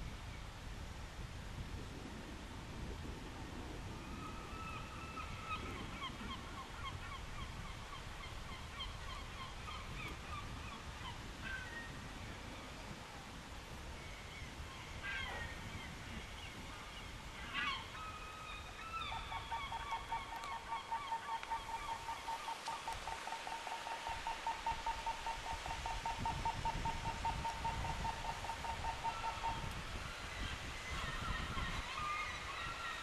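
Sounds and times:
bird calls: 14.2 - 33.0.

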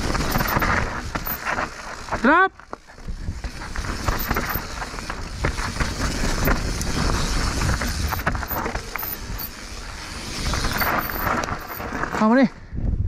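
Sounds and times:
bike rattling and clicking: 0.0 - 12.7
bike tyres on dirt: 0.0 - 13.0
wind on microphone: 12.6 - 13.0.

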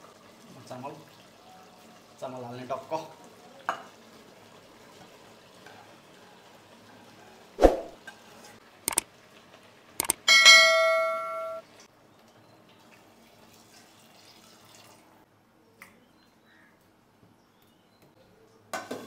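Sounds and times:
bell-like metallic ring: 10.3 - 11.6.

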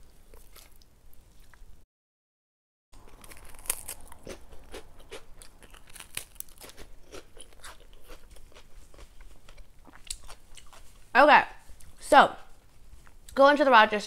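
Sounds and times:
crunching and chewing cracker: 0.1 - 1.6, 3.0 - 11.1.

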